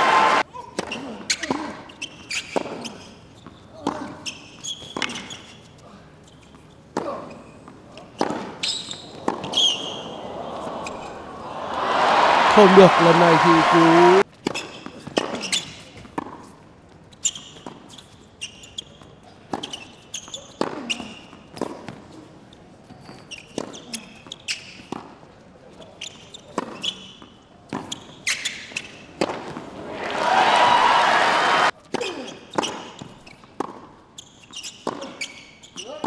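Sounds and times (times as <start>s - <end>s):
crowd noise: 0.0s - 0.4s, 9.2s - 14.2s, 29.5s - 31.7s
sneakers squeaking: 0.0s - 25.2s, 25.8s - 36.0s
racket striking tennis ball: 9.2s - 10.1s
tennis ball bouncing: 9.2s - 11.4s, 32.5s - 33.9s.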